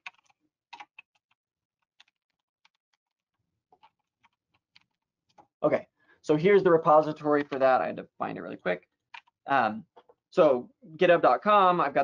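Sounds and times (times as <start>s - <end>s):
typing on computer keyboard: 0.0s - 3.2s.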